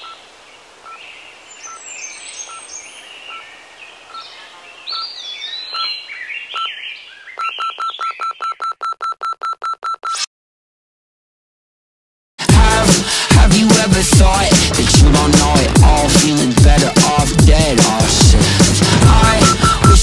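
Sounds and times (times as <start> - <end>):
birds chirping: 0.0 - 8.8, 13.6 - 20.0
short electronic beeps: 6.6 - 6.8, 7.4 - 10.3, 19.1 - 20.0.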